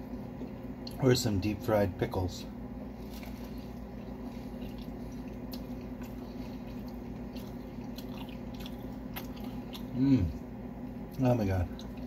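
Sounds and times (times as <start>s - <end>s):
steady low hum: 0.0s - 12.0s
person chewing wetly: 3.0s - 12.0s.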